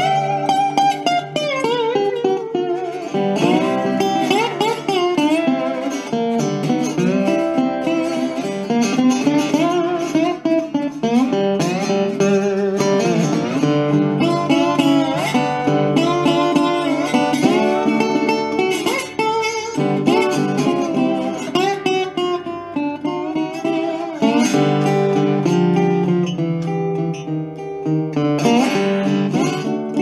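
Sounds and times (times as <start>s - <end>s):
slide guitar blues: 0.0s - 30.0s.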